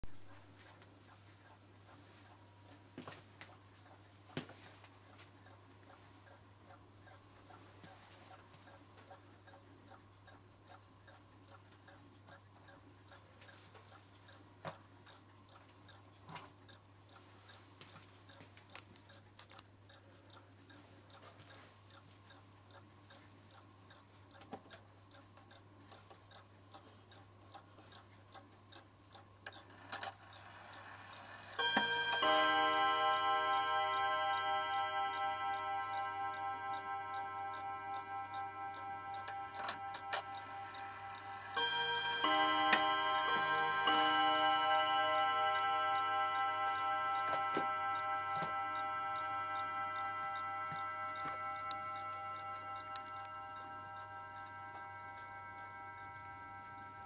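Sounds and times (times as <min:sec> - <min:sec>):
clock clicks: 0:00.0 - 0:57.0
clock ticking: 0:00.0 - 0:57.0
clock chime on gong rods: 0:31.5 - 0:57.0.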